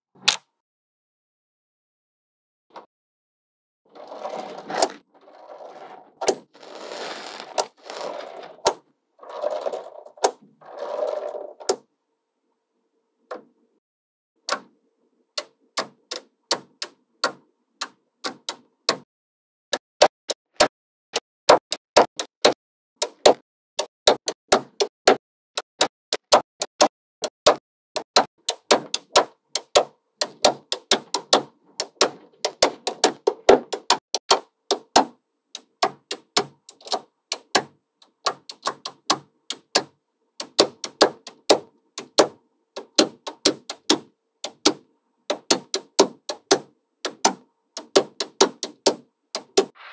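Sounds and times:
magnetic balls clicking: 35.6s - 42.2s.

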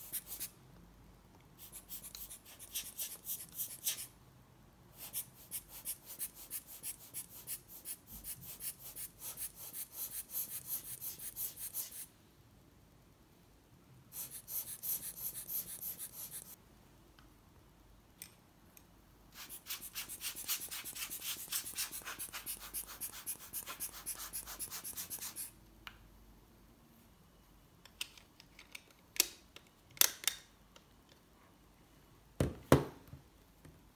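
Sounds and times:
knock: 32.4s - 33.0s.

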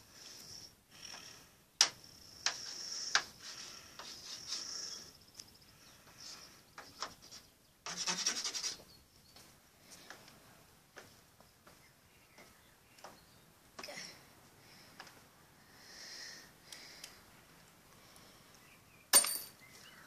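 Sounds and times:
fast chalk scraping: 2.4s - 5.0s, 6.2s - 8.9s
chalk scratching on chalkboard: 2.5s - 5.0s, 7.0s - 8.9s.

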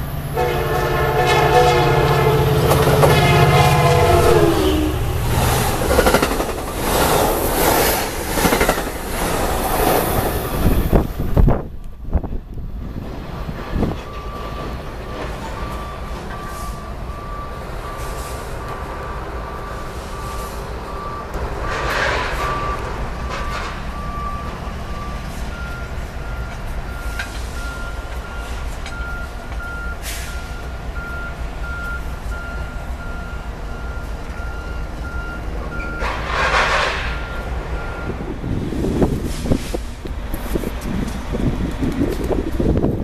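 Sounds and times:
wind on microphone: 8.4s - 14.1s, 38.0s - 43.0s.

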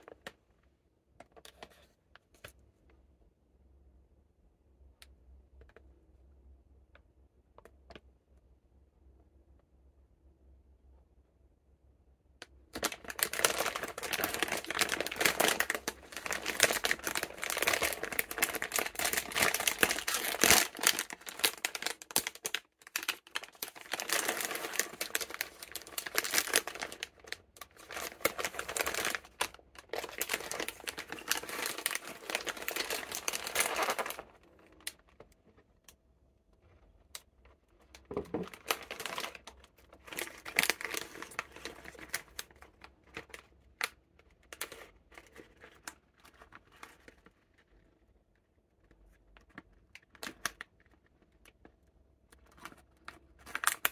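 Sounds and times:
plastic snack packaging crackling: 12.5s - 36.0s, 36.6s - 48.2s, 48.8s - 53.9s.

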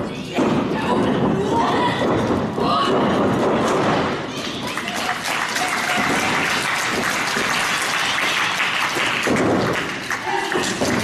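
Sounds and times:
audience clapping: 4.4s - 11.0s.

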